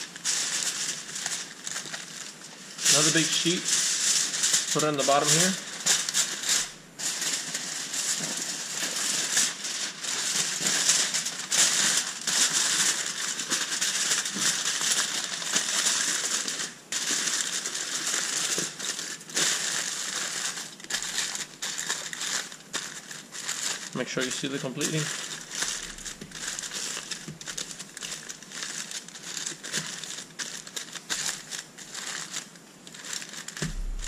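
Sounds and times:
aluminium foil crinkling: 0:00.0 - 0:34.0.

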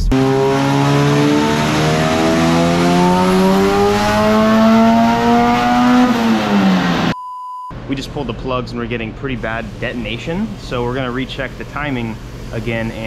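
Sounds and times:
car engine full-throttle pull: 0:00.0 - 0:07.2.

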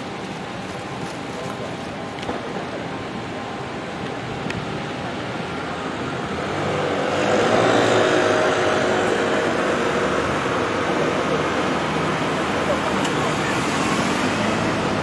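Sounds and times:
city street traffic hum: 0:00.0 - 0:15.0
vehicle passing close: 0:05.8 - 0:15.0.

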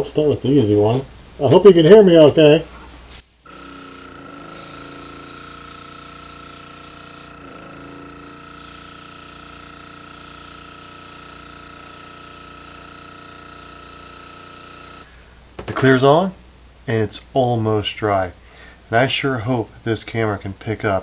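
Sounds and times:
compressor hum: 0:00.0 - 0:17.5
airbrush spraying hiss: 0:03.0 - 0:15.1.

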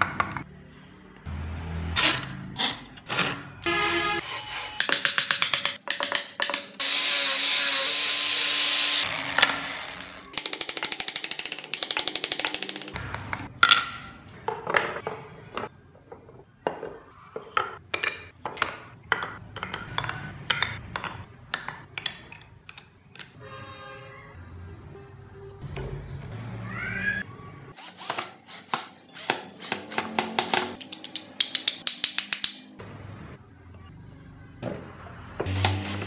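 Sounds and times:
power tool grinding: 0:06.8 - 0:10.4.

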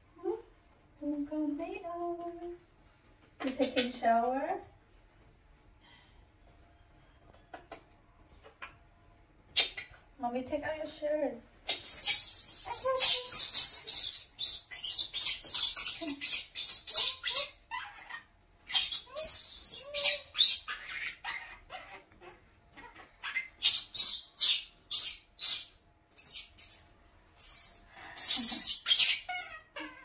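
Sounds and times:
baby monkey crying: 0:11.7 - 0:26.8, 0:27.4 - 0:30.0.

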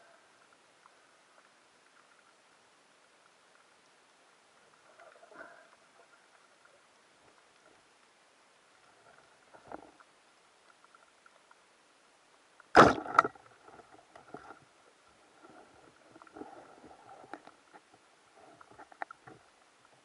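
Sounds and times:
underwater clicks and crackling: 0:00.4 - 0:20.0
speargun firing crack: 0:12.8 - 0:13.3.

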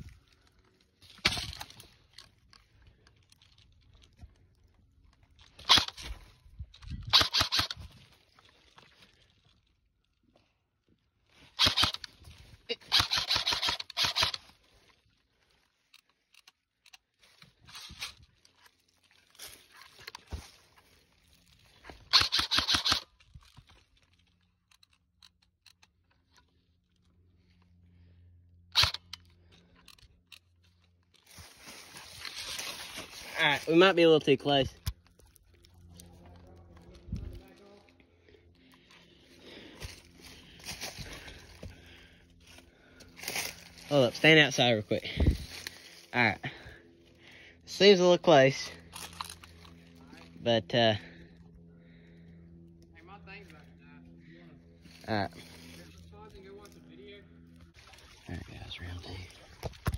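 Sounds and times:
footsteps crunching dry leaves: 0:17.2 - 0:22.1, 0:31.2 - 0:33.9, 0:39.3 - 0:46.2, 0:54.8 - 0:56.9.

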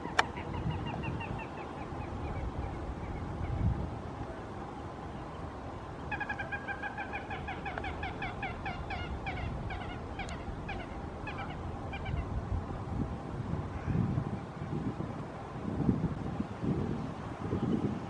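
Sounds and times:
wind noise on microphone: 0:00.0 - 0:18.0
swan calling: 0:06.0 - 0:12.3.

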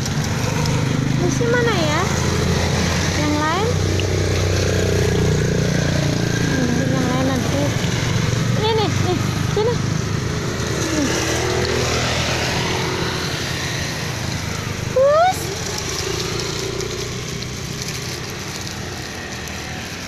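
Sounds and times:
steady rain falling: 0:09.4 - 0:20.0.

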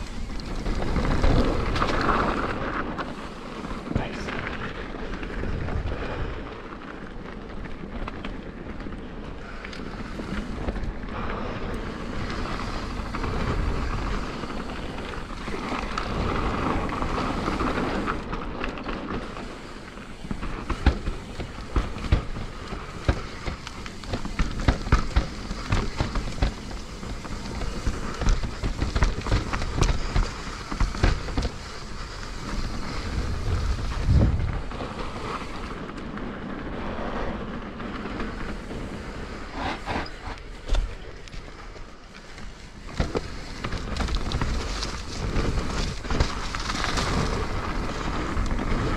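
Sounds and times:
bike clacking and rattling: 0:00.0 - 0:48.9
bike tyres rolling over dirt: 0:00.0 - 0:48.9
wind buffeting microphone: 0:19.2 - 0:41.8.

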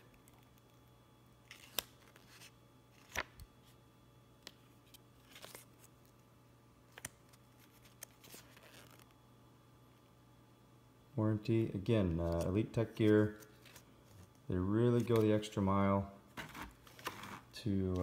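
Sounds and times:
faint low hum: 0:00.0 - 0:18.0
paper crackling: 0:01.5 - 0:03.5, 0:06.9 - 0:09.2.

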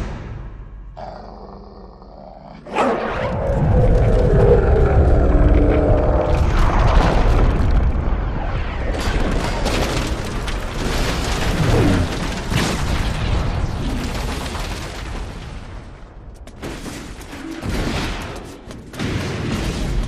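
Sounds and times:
explosions: 0:02.9 - 0:20.0
crashing debris: 0:06.3 - 0:18.1.

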